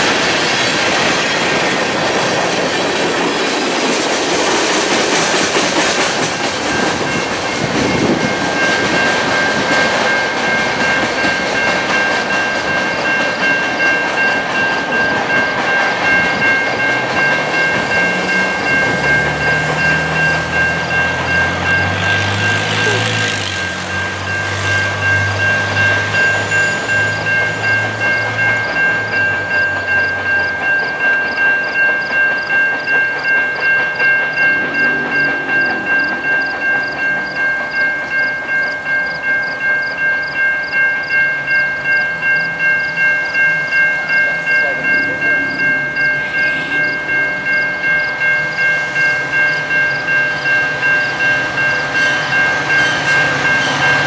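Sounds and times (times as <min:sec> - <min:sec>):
crossing warning bell ringing: 0:00.0 - 0:54.0
freight train rattling over rails: 0:00.0 - 0:54.0
low drone: 0:33.2 - 0:39.0.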